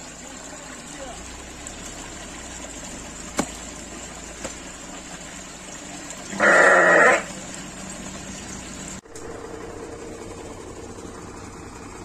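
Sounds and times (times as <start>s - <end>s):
animal bleating: 6.3s - 7.3s.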